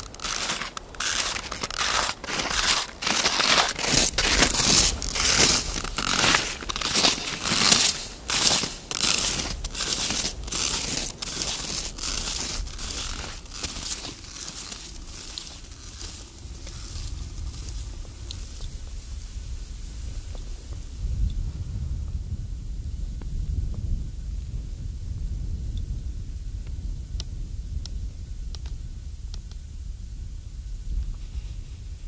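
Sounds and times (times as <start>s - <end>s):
boots crunching in snow: 0.0s - 19.3s.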